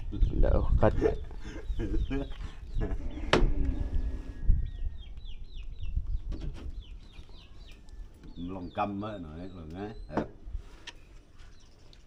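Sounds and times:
chickens clucking: 0:00.8 - 0:08.8.

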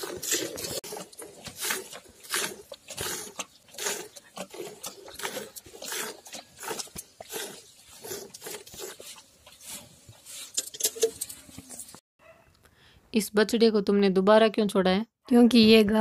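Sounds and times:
milk squirting into bucket: 0:00.0 - 0:11.2.

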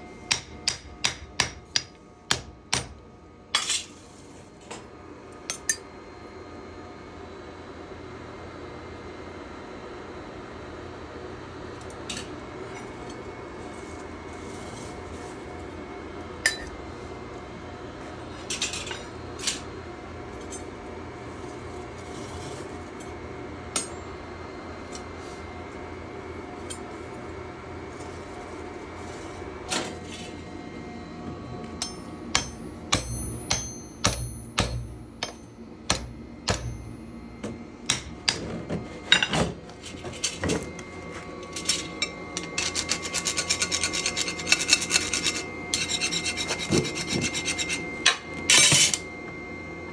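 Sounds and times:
workshop hum: 0:00.0 - 0:49.9
high ringing metal tone: 0:05.5 - 0:05.9, 0:16.4 - 0:16.8, 0:23.7 - 0:24.2, 0:30.2 - 0:38.4, 0:40.2 - 0:49.9
file scraping steel: 0:42.4 - 0:47.9.

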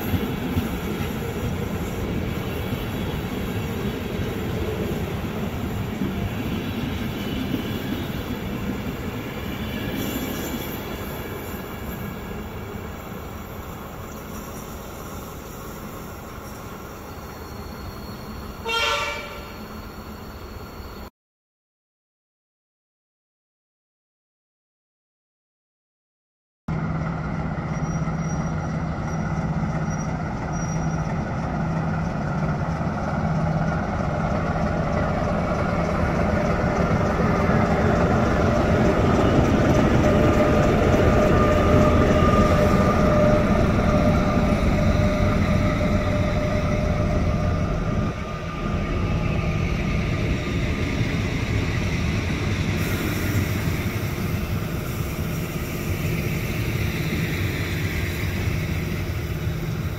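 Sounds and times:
train wheels rolling on rails: 0:00.0 - 0:21.0, 0:26.7 - 0:59.9
locomotive engine: 0:26.7 - 0:59.9.

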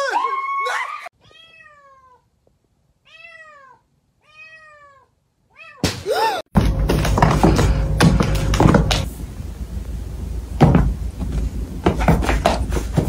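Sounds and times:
cat meowing: 0:01.2 - 0:02.3, 0:03.0 - 0:05.8
sudden thump: 0:10.6 - 0:11.4.

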